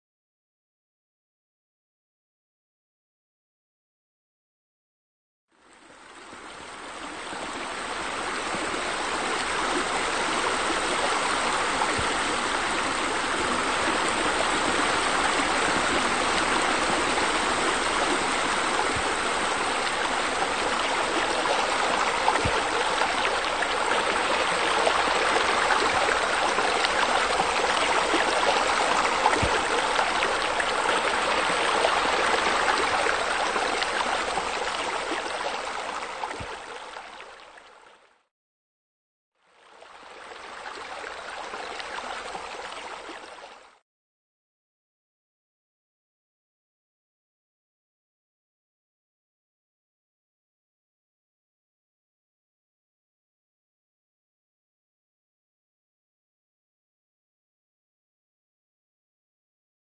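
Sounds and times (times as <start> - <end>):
running water: 5.8 - 38.0, 39.6 - 43.8.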